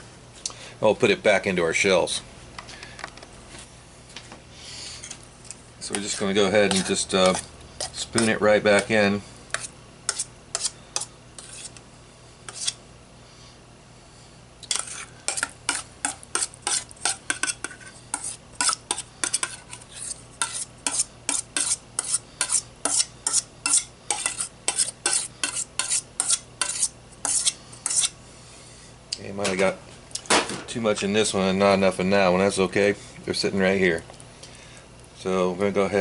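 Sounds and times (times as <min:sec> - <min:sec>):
metal spoon scraping steel bowl: 0:05.8 - 0:11.8, 0:12.5 - 0:12.8, 0:14.6 - 0:28.2.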